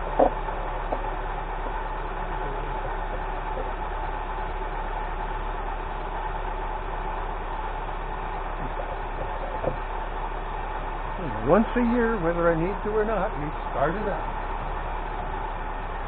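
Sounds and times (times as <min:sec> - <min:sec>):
pickup engine idling: 0:00.0 - 0:16.0.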